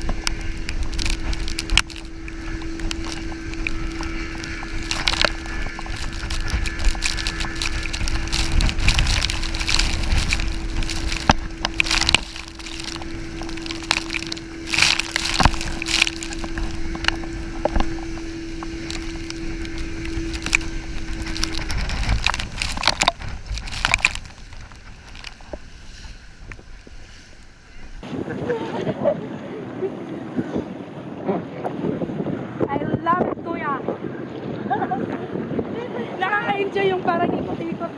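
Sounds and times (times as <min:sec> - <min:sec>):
steady hum: 0:00.0 - 0:28.6
rushing water: 0:00.0 - 0:37.9
wind buffeting camera: 0:00.0 - 0:37.9.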